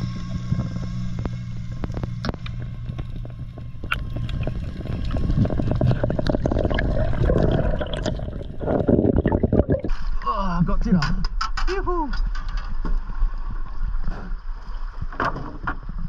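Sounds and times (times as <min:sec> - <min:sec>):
water churning and bubbles: 0:00.0 - 0:11.0
low underwater hum: 0:00.0 - 0:11.4, 0:12.2 - 0:16.0
sharp underwater clicks: 0:01.2 - 0:08.2.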